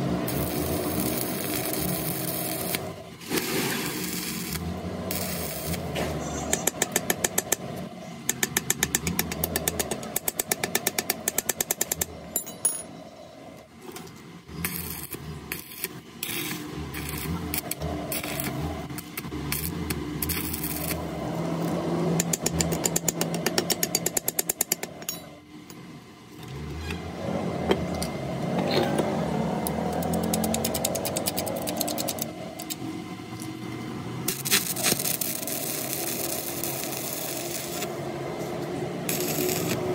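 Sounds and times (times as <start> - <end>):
workshop machine noise: 0.0 - 39.9.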